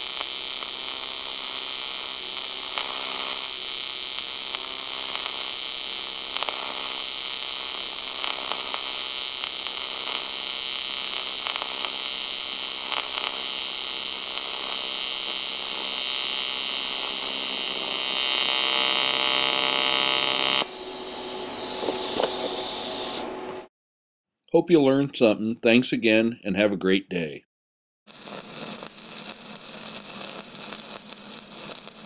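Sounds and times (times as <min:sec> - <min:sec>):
welding arc buzzing hum: 0:00.0 - 0:23.7, 0:28.1 - 0:32.0
faint crackles: 0:00.1 - 0:20.7, 0:28.1 - 0:32.0.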